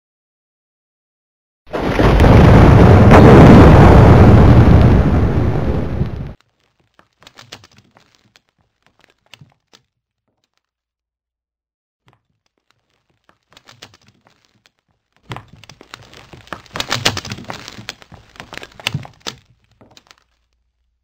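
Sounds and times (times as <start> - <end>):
debris cracking and crumbling: 1.7 - 10.8, 12.0 - 21.0
low rumble: 2.2 - 6.4.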